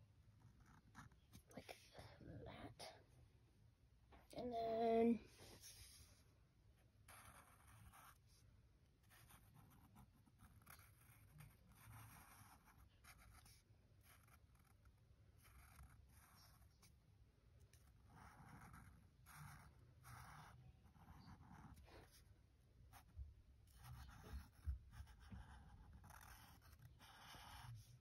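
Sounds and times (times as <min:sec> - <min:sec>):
marker scratching on paper: 0:07.1 - 0:08.4, 0:09.0 - 0:17.0, 0:17.7 - 0:22.3, 0:22.9 - 0:28.0.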